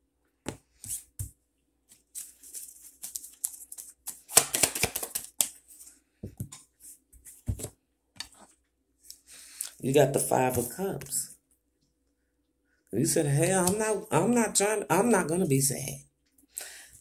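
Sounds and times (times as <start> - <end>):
cards rustling and clicking: 1.9 - 5.9.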